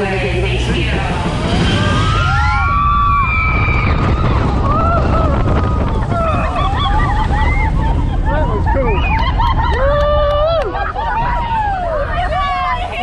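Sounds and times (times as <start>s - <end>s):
rush of wind and water: 0.2s - 13.0s
people shouting and whooping: 1.4s - 13.0s
riders screaming: 1.5s - 8.0s.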